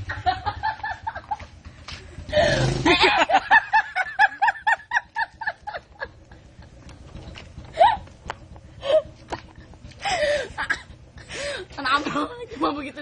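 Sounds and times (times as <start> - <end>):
person laughing: 0.1 - 1.5, 2.3 - 6.8, 7.7 - 8.1.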